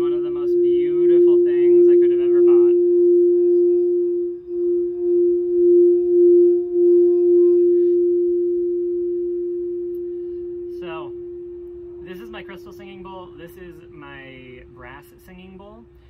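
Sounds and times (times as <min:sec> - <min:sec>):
singing bowl tone: 0:00.0 - 0:15.1.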